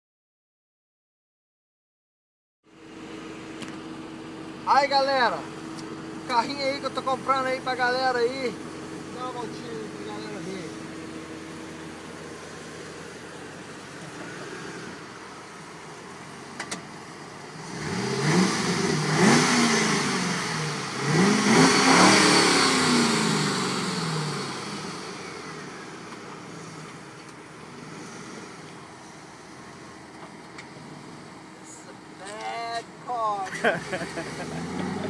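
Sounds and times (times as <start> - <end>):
car engine revving: 2.9 - 32.2, 33.5 - 35.0.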